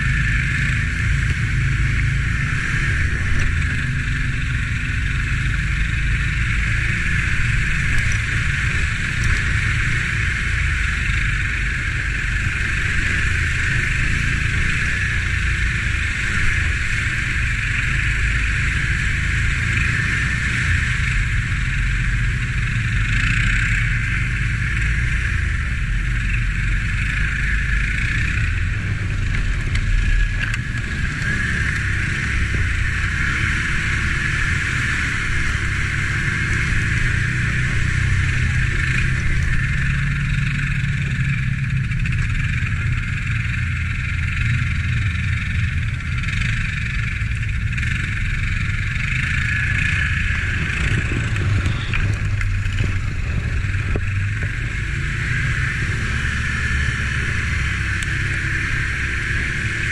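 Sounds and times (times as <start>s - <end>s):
quad bike engine running: 0.0s - 59.9s.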